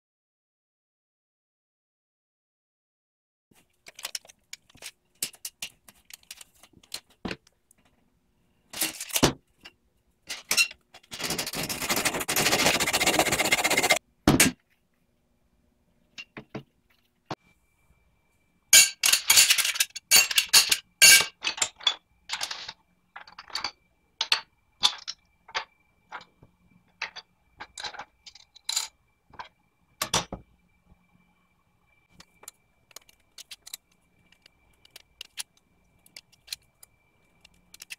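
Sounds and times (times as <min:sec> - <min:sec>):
metal and plastic parts clattering: 0:03.6 - 0:08.0, 0:08.7 - 0:14.6, 0:18.8 - 0:30.4, 0:32.1 - 0:37.9.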